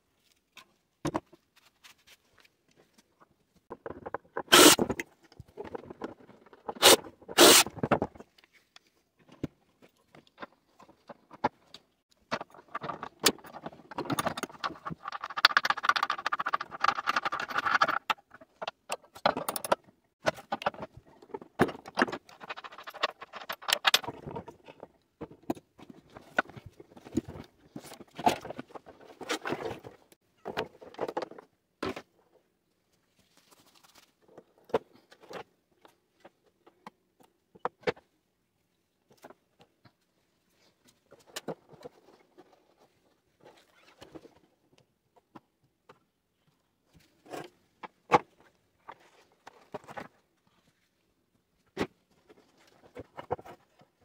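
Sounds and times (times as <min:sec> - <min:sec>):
tools clattering on metal parts: 0:12.3 - 0:24.4.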